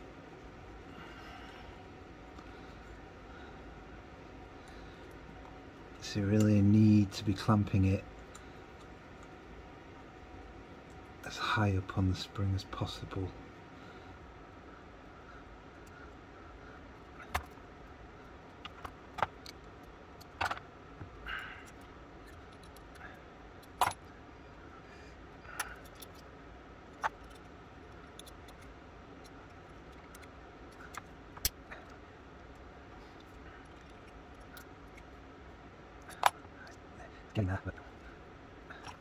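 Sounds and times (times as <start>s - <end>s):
small metal parts clicking: 21.4s - 24.1s, 25.5s - 26.3s, 26.9s - 31.6s, 36.0s - 36.8s.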